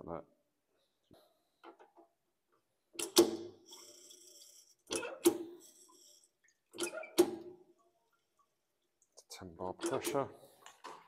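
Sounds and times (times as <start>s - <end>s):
hand pump clunking strokes: 9.8s - 10.2s.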